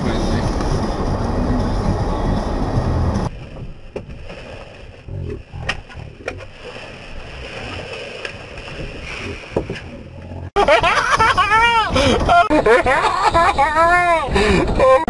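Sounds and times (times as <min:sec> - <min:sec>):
car engine running: 0:00.0 - 0:04.0.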